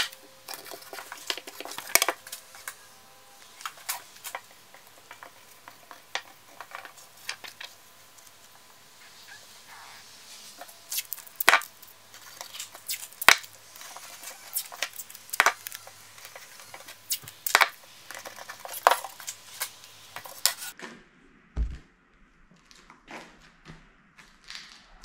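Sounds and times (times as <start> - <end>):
low thump: 21.6 - 21.9.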